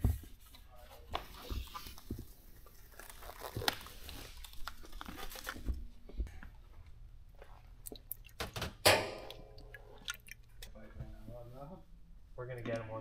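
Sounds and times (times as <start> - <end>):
gloved hands crinkling: 1.0 - 5.8.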